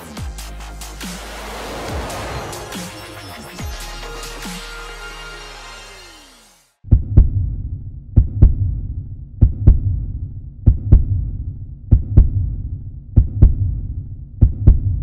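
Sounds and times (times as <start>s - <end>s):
heartbeat thumps: 6.9s - 15.0s.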